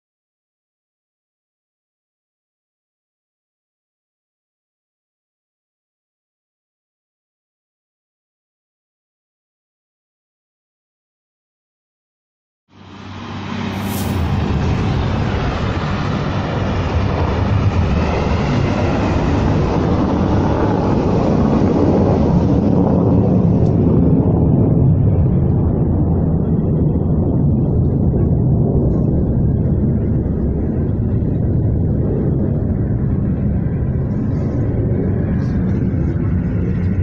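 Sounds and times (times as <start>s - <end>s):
rocket motors rushing roar: 12.8s - 25.9s.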